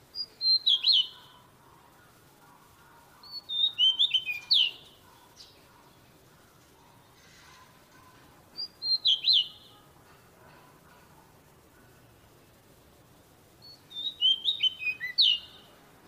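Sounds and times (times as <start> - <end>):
bird whistling song: 0.1 - 1.4, 3.2 - 4.9, 8.6 - 9.7, 13.6 - 15.7.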